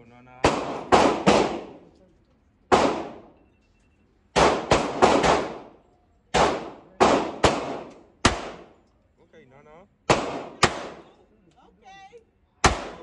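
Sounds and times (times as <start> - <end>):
gunshots echoing indoors: 0.4 - 1.9, 2.7 - 3.4, 4.3 - 8.8, 10.1 - 11.2, 12.6 - 13.0.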